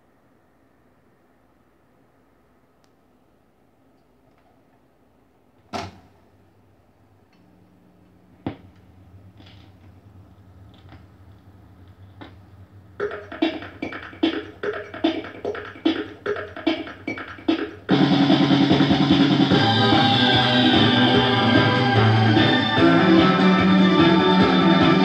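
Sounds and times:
record player hum: 0.0s - 14.3s
drum beats: 13.0s - 25.0s
band with guitar playing: 19.3s - 25.0s.

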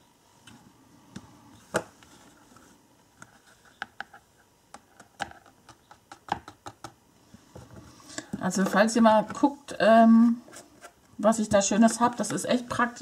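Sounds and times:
plastic tray clicking and tapping: 4.7s - 7.0s.

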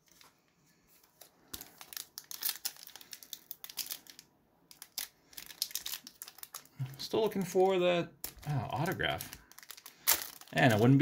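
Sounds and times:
foil wrapper tearing and crinkling: 1.5s - 6.8s, 7.6s - 11.0s.

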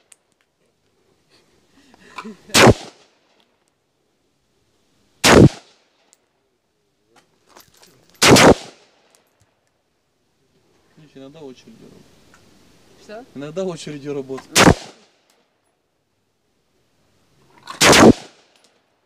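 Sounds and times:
rifle shots with echo: 2.5s - 3.0s, 5.2s - 5.8s, 8.2s - 8.8s, 14.6s - 15.1s, 17.8s - 18.5s.

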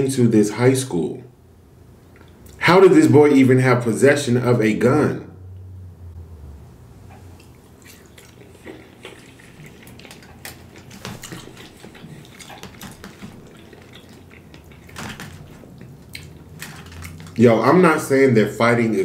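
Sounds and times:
man chewing: 1.9s - 2.6s, 7.0s - 17.5s.

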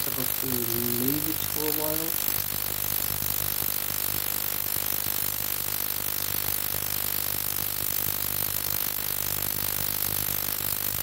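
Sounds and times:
ultrasonic cleaner hum: 0.0s - 3.2s
constant high hiss: 0.0s - 11.0s.

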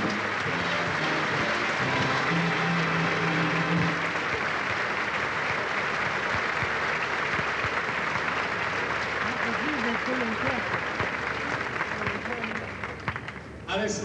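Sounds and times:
audience applauding: 0.0s - 13.6s
held musical note: 0.5s - 4.5s.

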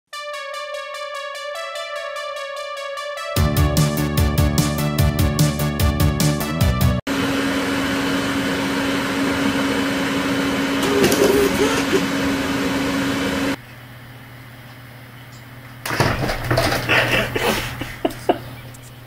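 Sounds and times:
machine hum: 7.1s - 19.0s.

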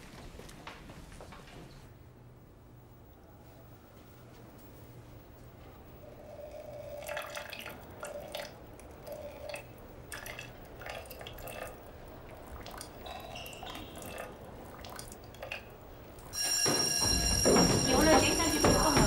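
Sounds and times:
urine trickling into urinal: 6.3s - 16.4s.

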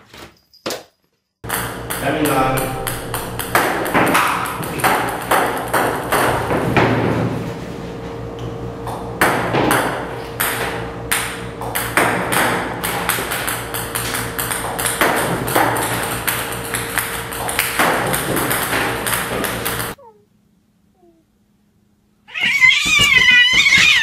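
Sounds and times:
ping-pong balls bouncing: 1.4s - 6.6s, 8.9s - 20.0s, 22.5s - 24.0s
steady hum: 1.4s - 24.0s.

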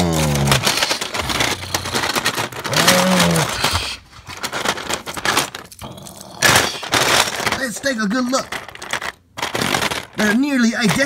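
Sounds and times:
plastic toy pieces clattering: 0.0s - 11.0s
person humming: 2.7s - 3.6s.

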